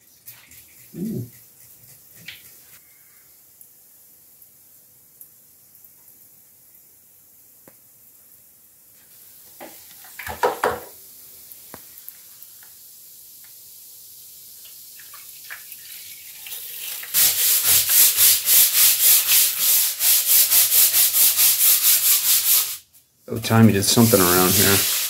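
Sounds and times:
tool scrubbing plaster wall: 0.0s - 2.8s, 16.7s - 25.0s
faint hiss: 0.0s - 25.0s
knocks: 10.3s - 10.9s.

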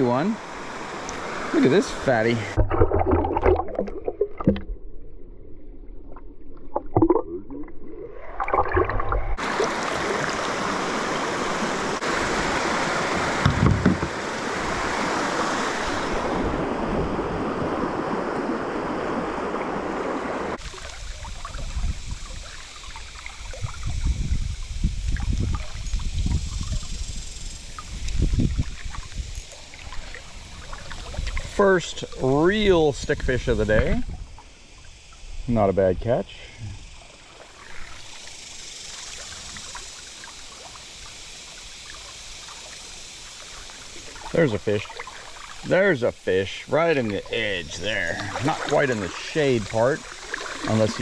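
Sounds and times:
rushing river water: 0.0s - 4.4s, 8.2s - 24.3s, 27.8s - 33.5s, 37.0s - 51.0s
muffled underwater splashing: 0.0s - 26.8s, 36.5s - 51.0s
water sloshing: 0.7s - 24.2s, 27.7s - 32.3s, 43.4s - 46.0s, 46.7s - 51.0s.

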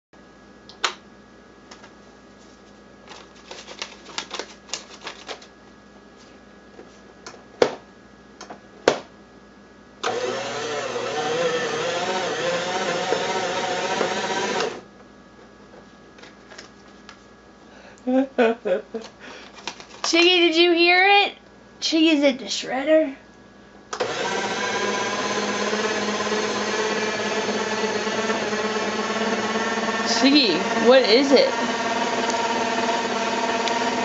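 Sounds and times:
paper shredder shredding paper: 10.0s - 14.8s, 24.0s - 34.0s.

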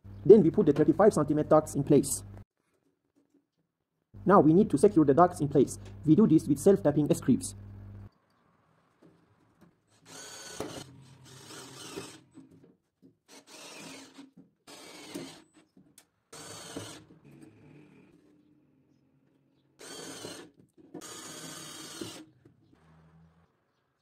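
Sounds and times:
cordless drill driving screws: 9.9s - 12.5s, 13.3s - 15.6s, 16.3s - 17.2s, 19.8s - 22.3s.

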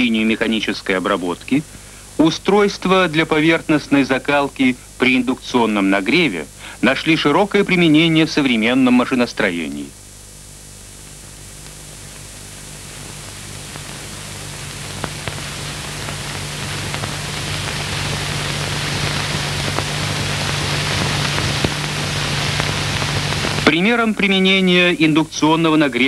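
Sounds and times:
steady hiss: 0.0s - 26.0s.

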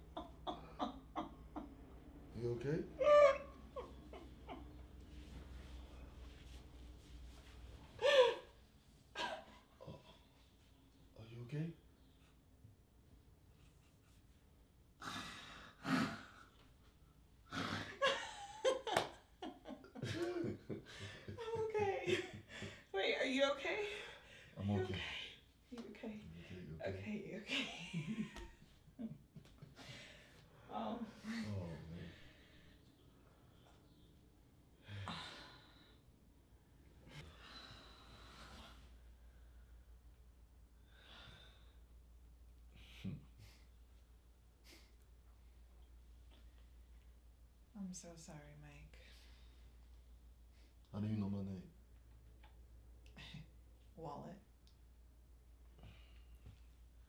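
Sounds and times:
woman laughing: 0.0s - 1.7s, 3.0s - 4.7s, 17.8s - 22.9s
people breathing hard and sighing: 7.5s - 10.5s, 15.0s - 18.0s, 20.2s - 21.4s, 22.4s - 23.0s, 23.8s - 25.6s, 29.6s - 33.8s, 34.8s - 36.2s, 36.9s - 40.0s, 40.8s - 43.9s, 55.7s - 56.8s
woman breathing hard: 34.8s - 36.1s, 37.0s - 39.7s, 40.8s - 42.0s.

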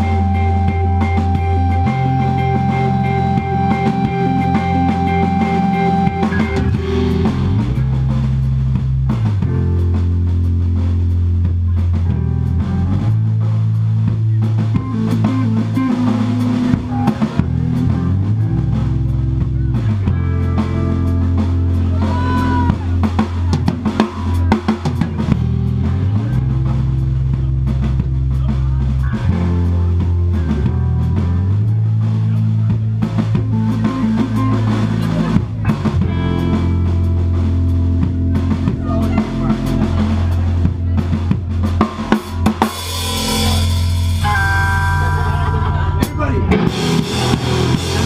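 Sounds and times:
bass notes: 0.0s - 48.0s
drum kit: 0.0s - 48.0s
electric guitar: 0.0s - 48.0s
loud cymbal wash: 41.8s - 45.4s.

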